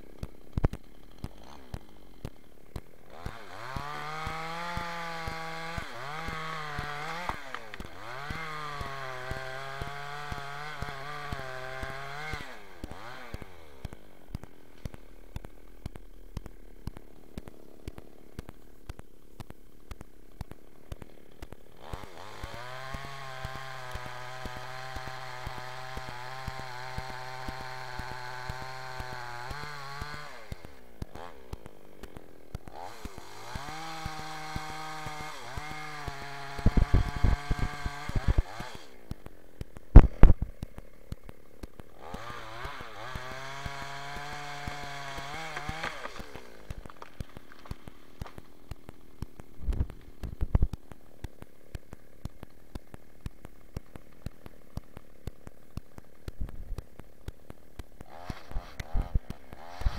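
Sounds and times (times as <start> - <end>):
chainsaw revving and idling: 0.0 - 59.9.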